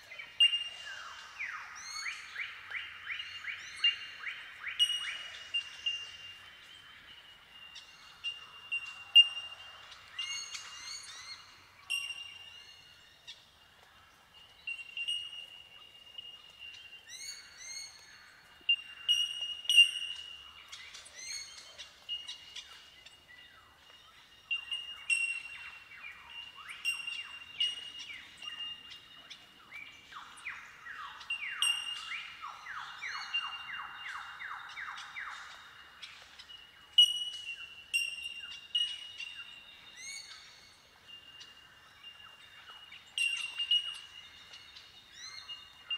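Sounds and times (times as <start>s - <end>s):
bell-like bird calls: 7.8s - 11.2s, 11.9s - 12.5s, 14.6s - 16.3s, 18.7s - 20.4s, 31.2s - 34.3s, 37.0s - 40.7s, 43.0s - 44.6s.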